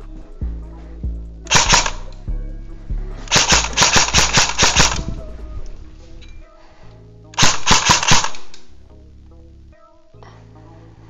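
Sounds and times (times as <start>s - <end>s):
airsoft rifle bursts: 1.5s - 2.2s, 3.3s - 5.1s, 7.4s - 8.7s.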